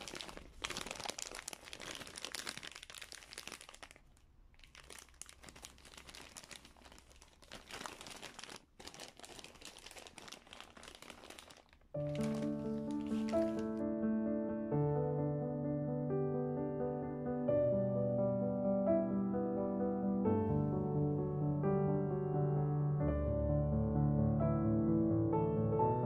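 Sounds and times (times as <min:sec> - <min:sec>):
plastic bags crinkling: 0:00.0 - 0:13.8.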